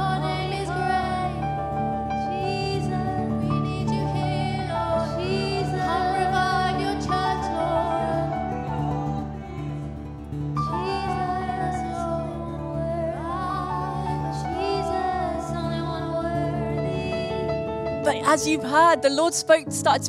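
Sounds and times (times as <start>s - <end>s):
held instrumental backing: 16.8s - 20.0s.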